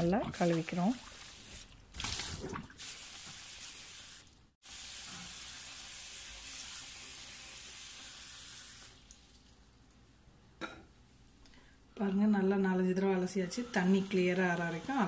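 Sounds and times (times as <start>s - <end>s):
water splashing in a bowl: 0.0s - 3.4s
tap water running: 0.0s - 9.5s.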